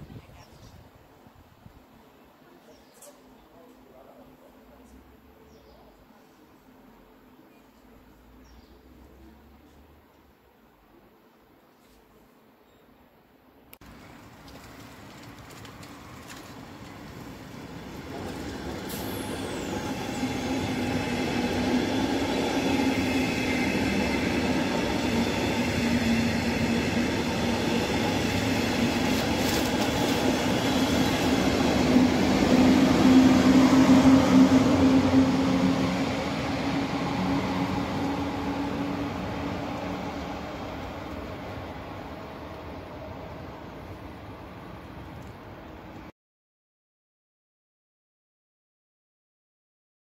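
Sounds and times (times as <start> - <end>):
train wheels rolling on rails: 13.8 - 43.6.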